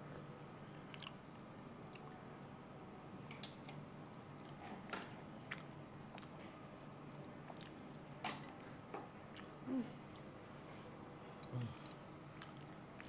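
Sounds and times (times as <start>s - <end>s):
faint steady hum: 0.0s - 13.0s
chewing: 0.9s - 1.2s, 5.5s - 7.8s, 11.4s - 13.0s.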